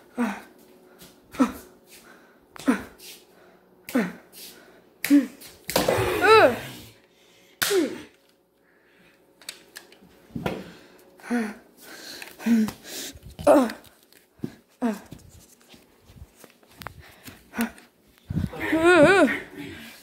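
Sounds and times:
child grunting and groaning: 5.9s - 6.9s, 13.3s - 13.9s, 17.6s - 20.0s.

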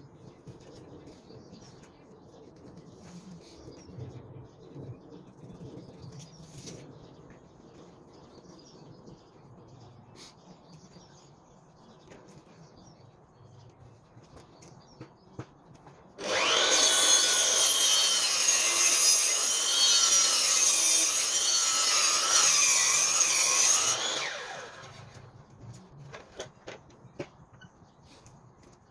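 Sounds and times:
mitre saw cutting wood: 16.2s - 25.3s.

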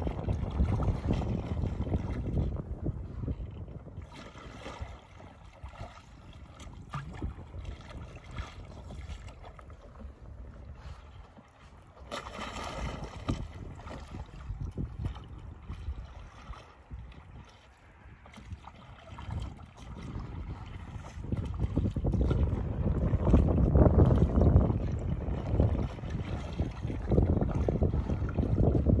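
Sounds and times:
water splashing and sloshing: 0.0s - 29.0s
wind rumbling on microphone: 0.0s - 29.0s.

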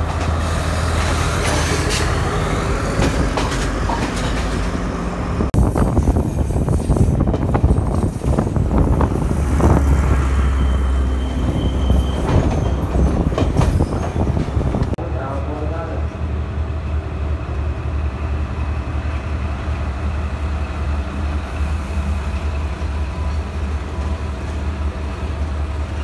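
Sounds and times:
train wheels on rail: 0.0s - 15.0s, 15.6s - 26.0s
diesel train engine hum: 0.0s - 26.0s
wheels and couplings knocking: 3.0s - 4.8s.

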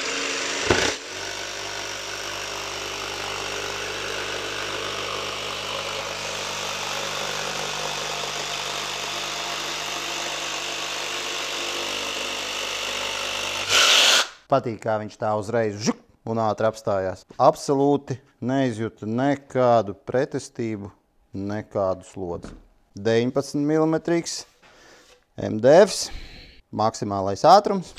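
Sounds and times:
jigsaw sawing through board: 0.0s - 14.4s.

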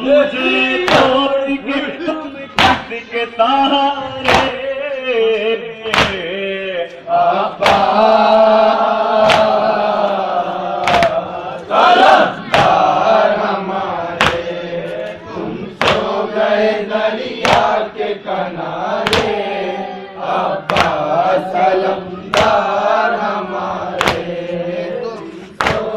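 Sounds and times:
men chanting in unison: 0.0s - 25.9s
collective chest slapping: 4.2s - 4.6s, 5.9s - 6.3s, 7.6s - 8.0s, 9.2s - 9.7s, 10.8s - 11.2s, 12.5s - 12.9s, 14.2s - 14.6s, 15.8s - 16.2s, 17.4s - 17.8s, 19.0s - 19.4s, 20.7s - 21.1s, 22.3s - 22.7s, 23.9s - 24.5s, 25.6s - 25.9s.

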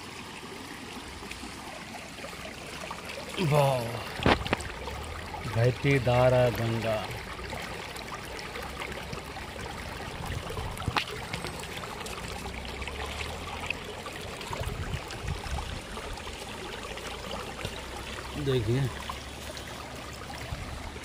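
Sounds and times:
stream babbling over stones: 0.0s - 21.0s.

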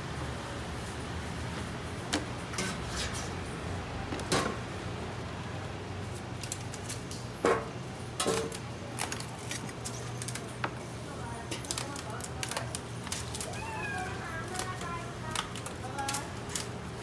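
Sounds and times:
utensils scraping cutting board: 2.6s - 3.4s.

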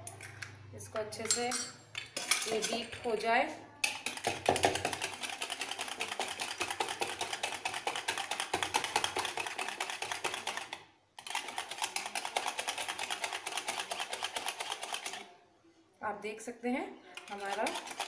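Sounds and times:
whisk beating eggs in bowl: 3.8s - 15.2s, 17.2s - 18.0s.

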